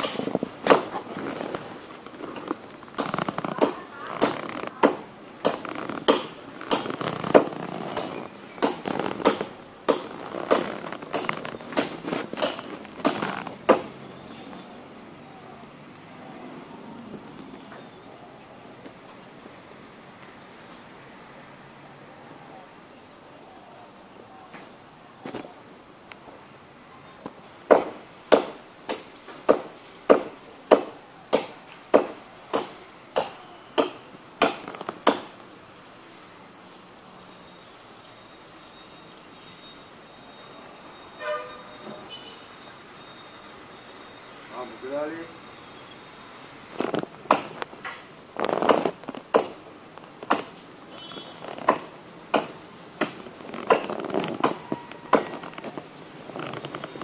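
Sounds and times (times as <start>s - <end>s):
blade chopping palm wood: 0.0s - 1.0s, 2.3s - 14.0s, 27.7s - 35.4s, 47.3s - 47.6s, 48.5s - 49.6s, 50.2s - 50.6s, 51.6s - 55.6s
sharp clicks and cracks: 0.0s - 13.9s
crunchy rustling: 0.0s - 14.2s, 46.6s - 57.0s.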